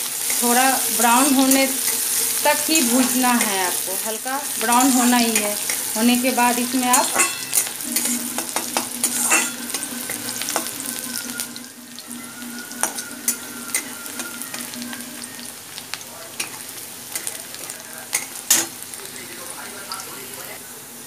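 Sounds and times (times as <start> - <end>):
onions sizzling in oil: 0.0 - 21.0
metal spatula scraping pan: 0.1 - 15.8.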